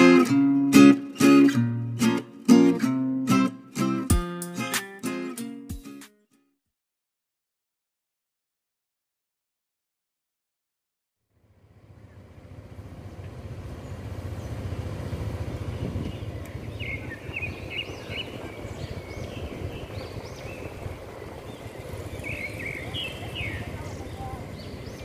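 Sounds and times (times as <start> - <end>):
distant city traffic rumble: 11.4 - 25.0
small birds chirping: 13.0 - 25.0.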